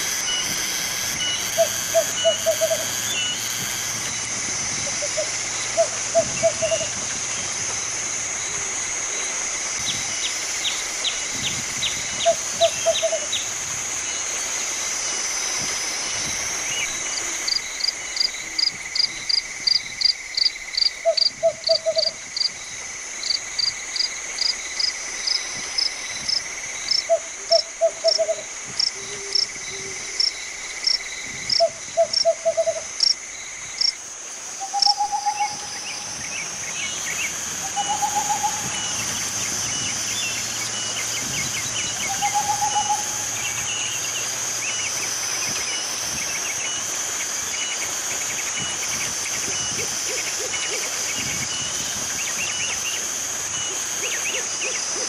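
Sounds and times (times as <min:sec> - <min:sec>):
sharp high chirps: 0:00.0 - 0:07.0
owl hooting: 0:00.0 - 0:07.6, 0:11.8 - 0:13.5, 0:20.8 - 0:22.2, 0:27.0 - 0:30.3, 0:31.5 - 0:33.0, 0:34.5 - 0:39.3, 0:41.9 - 0:44.0
high insect drone: 0:00.0 - 0:55.0.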